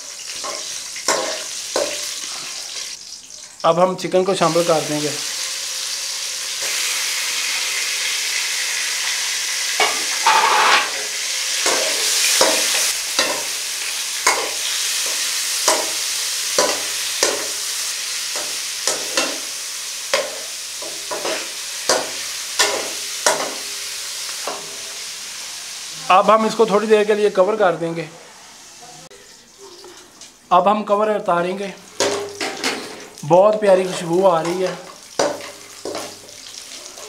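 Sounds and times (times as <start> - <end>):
chicken sizzling in oil: 0.0 - 29.9, 31.4 - 37.0
metal spoon scraping pan: 0.3 - 2.7, 9.8 - 13.5.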